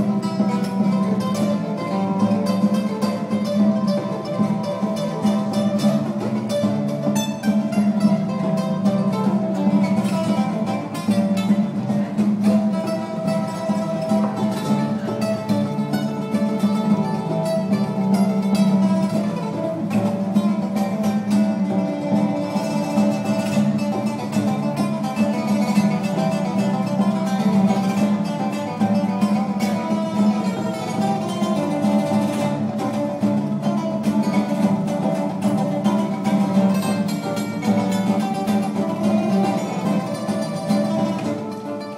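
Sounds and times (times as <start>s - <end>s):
fingerstyle acoustic guitar: 0.0s - 41.9s.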